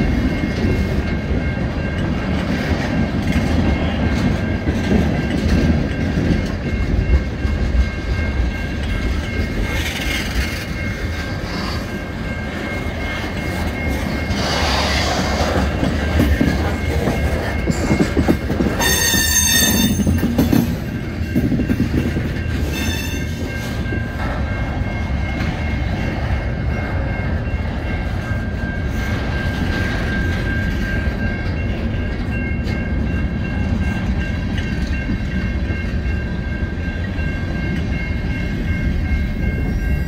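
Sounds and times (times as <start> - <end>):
train wheels rumbling on rails: 0.0 - 40.0
high-pitched wheel squeal: 22.7 - 23.3.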